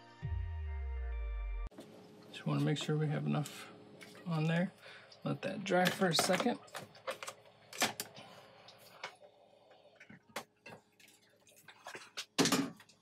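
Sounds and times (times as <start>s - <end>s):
faint steady hum: 1.8s - 12.0s.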